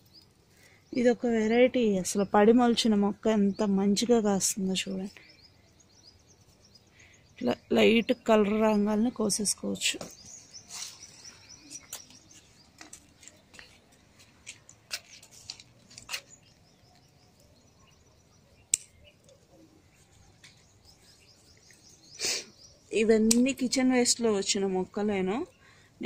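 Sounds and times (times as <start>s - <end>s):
birds chirping: 0.0s - 26.0s
plants rustling: 9.4s - 17.2s
tomatoes picked clicking: 18.7s - 19.4s.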